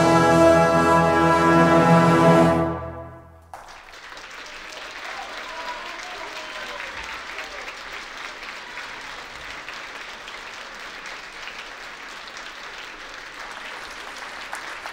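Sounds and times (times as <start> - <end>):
audience applauding: 3.4 - 14.9.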